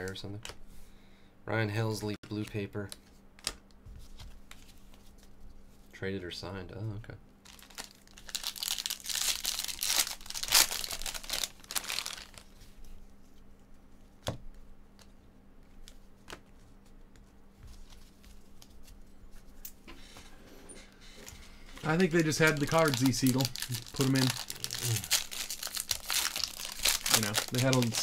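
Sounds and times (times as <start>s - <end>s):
foil wrapper tearing and crinkling: 7.4s - 12.5s, 21.8s - 28.0s
cards rustling and ticking: 7.4s - 13.0s, 14.2s - 19.1s, 21.2s - 28.0s.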